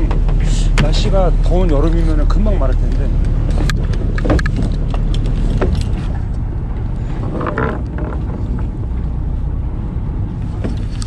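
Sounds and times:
boat engine rumbling: 0.0 - 11.0.

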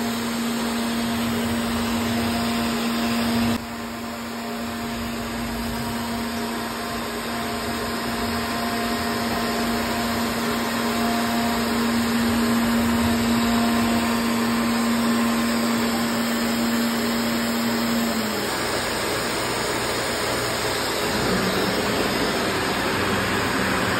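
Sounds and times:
router spindle whining: 0.0 - 23.9.

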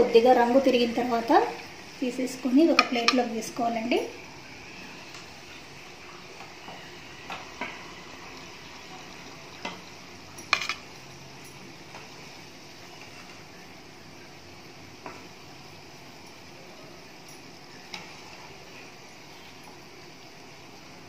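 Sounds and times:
oil sizzling: 0.0 - 21.0
metal spoon clinking on pan: 9.6 - 11.7.

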